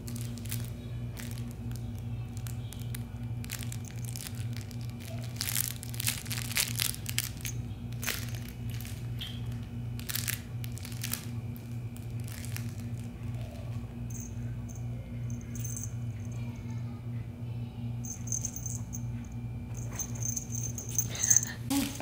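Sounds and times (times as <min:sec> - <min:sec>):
fabric rustling and crinkling: 0:00.0 - 0:14.3
steady low hum: 0:00.0 - 0:22.0.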